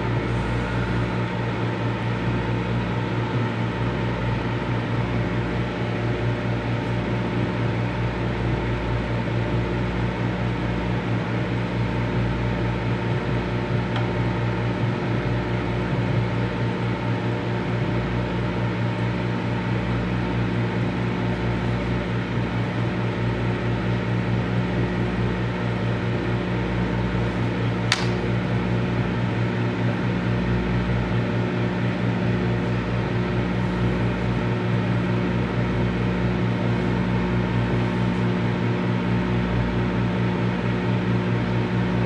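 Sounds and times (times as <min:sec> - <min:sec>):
microwave oven humming: 0:00.0 - 0:42.0
sharp click: 0:27.9 - 0:28.3.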